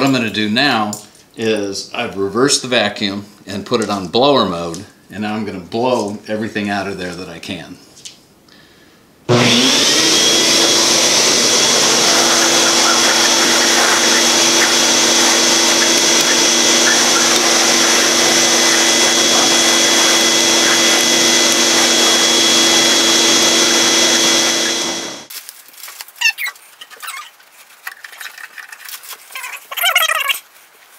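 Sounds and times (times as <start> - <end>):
shop vac blowing: 9.3 - 25.3.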